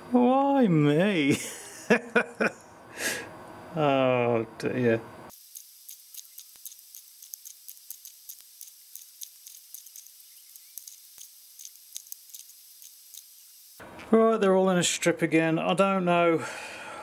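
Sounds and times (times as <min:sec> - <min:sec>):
small magnets clicking: 0:05.3 - 0:13.8.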